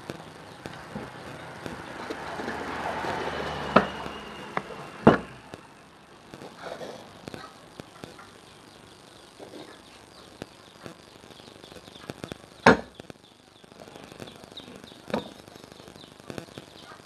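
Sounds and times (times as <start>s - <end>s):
sharp knocks: 4.6s - 5.4s.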